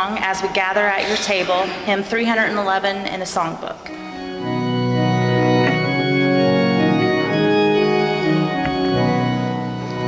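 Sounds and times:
organ playing held chords: 3.8 - 10.0.

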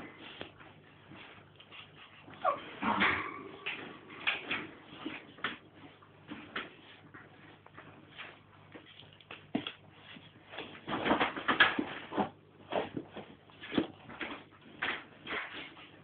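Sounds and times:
puppy whimpering: 2.2 - 3.7.

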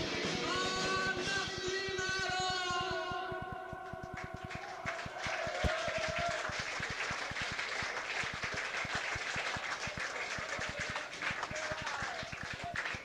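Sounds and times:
audience clapping and cheering: 0.0 - 13.0
people shouting: 3.8 - 6.5.

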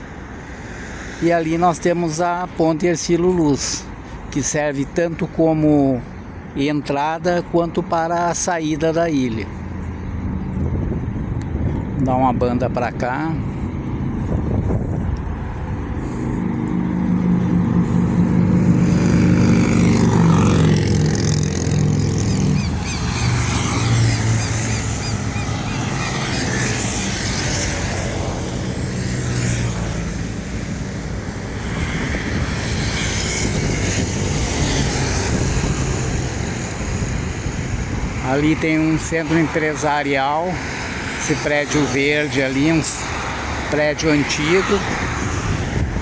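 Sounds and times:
cars driving past: 0.0 - 46.0
motorcycles driving past: 13.3 - 39.4.

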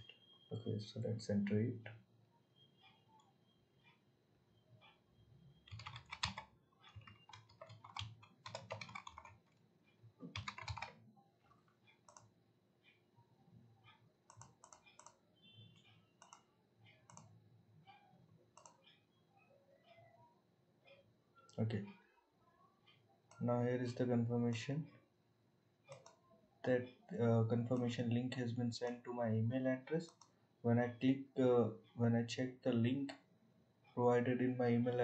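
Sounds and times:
typing on a keyboard: 5.6 - 9.6, 10.2 - 12.3, 14.3 - 15.2
mouse clicks: 14.3 - 15.2, 15.8 - 16.5, 18.6 - 19.0, 25.9 - 26.2, 30.0 - 30.3.

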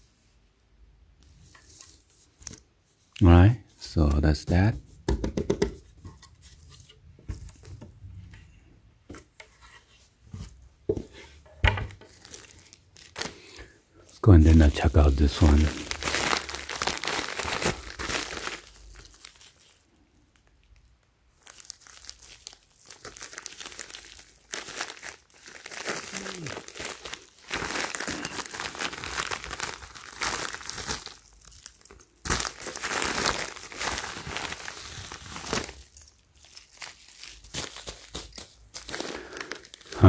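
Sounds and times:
plastic mailer crinkling: 14.4 - 19.8, 21.4 - 40.0.

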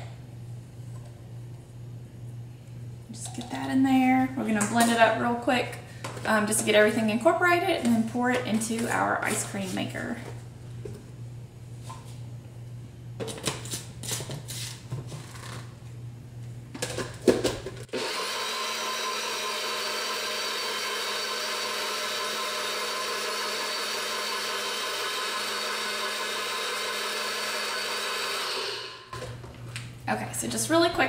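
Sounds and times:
blender running: 17.9 - 29.3.

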